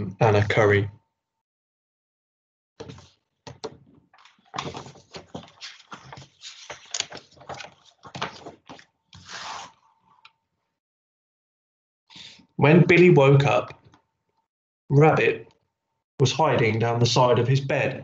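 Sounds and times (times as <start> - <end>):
book pages turning: 2.8 - 10.2
hands rubbing across pages: 4.2 - 9.8.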